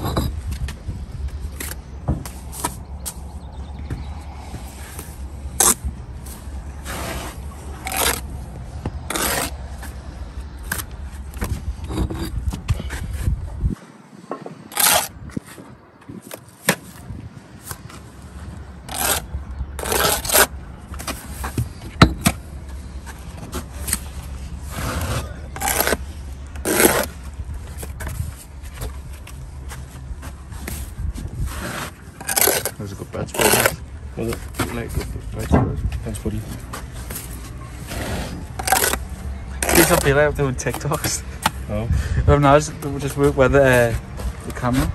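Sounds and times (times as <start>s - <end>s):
trowel scraping mortar: 5.0s - 5.9s, 6.8s - 8.4s, 9.0s - 10.0s, 14.6s - 15.2s, 18.8s - 20.5s, 23.8s - 28.2s, 31.3s - 35.0s, 37.0s - 41.3s.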